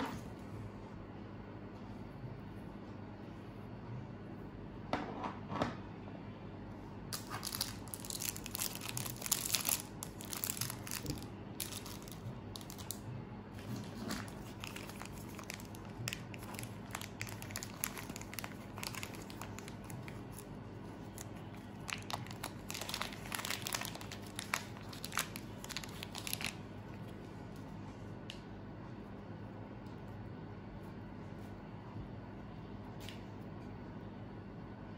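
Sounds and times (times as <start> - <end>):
plastic bags crinkling: 7.1 - 13.0, 13.6 - 27.1.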